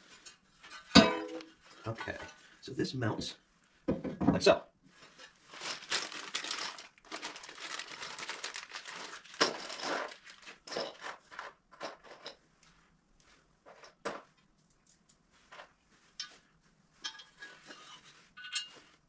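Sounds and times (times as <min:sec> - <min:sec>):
plastic packaging rustling: 0:05.0 - 0:12.4.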